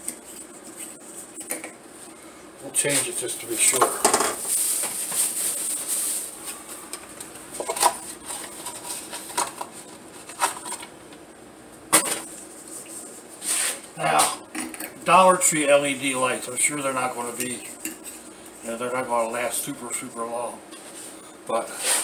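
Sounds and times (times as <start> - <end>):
cardboard packaging rustling: 3.0 - 10.9.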